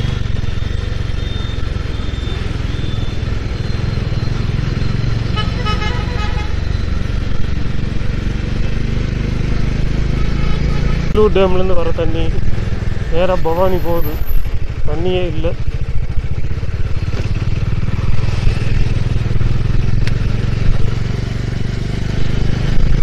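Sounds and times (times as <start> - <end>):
motorcycle engine rumbling: 0.0 - 23.0
town traffic: 0.0 - 23.0
vehicle horn honking: 5.2 - 6.7, 10.0 - 11.4.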